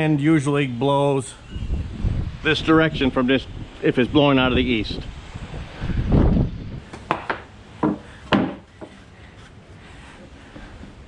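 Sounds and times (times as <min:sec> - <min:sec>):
wind buffeting microphone: 0:01.0 - 0:07.2.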